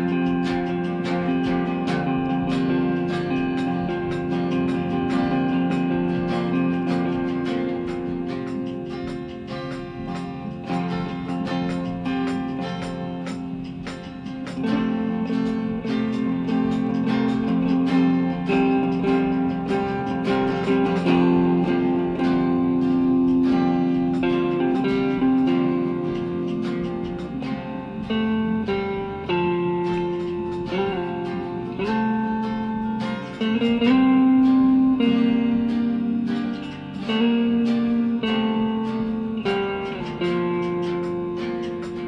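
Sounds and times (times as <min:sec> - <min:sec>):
guitar plucked and strummed: 0:00.0 - 0:42.0.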